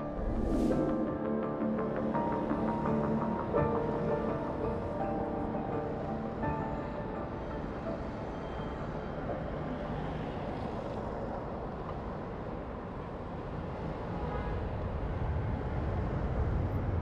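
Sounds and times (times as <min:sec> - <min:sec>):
low rumble: 0:00.0 - 0:02.6.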